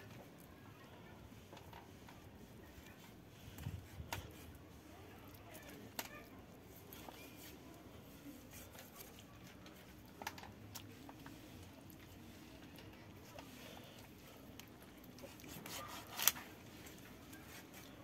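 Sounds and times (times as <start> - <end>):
knife cutting raw chicken: 15.3 - 16.5.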